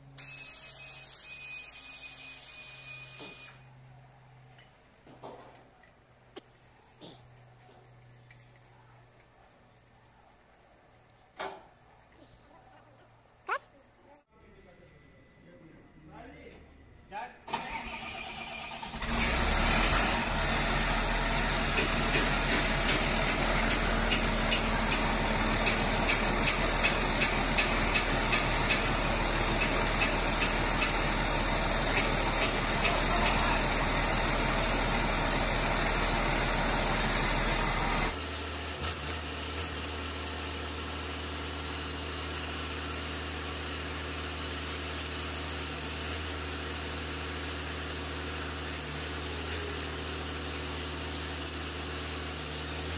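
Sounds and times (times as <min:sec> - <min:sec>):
diesel engine running: 0:17.6 - 0:52.9.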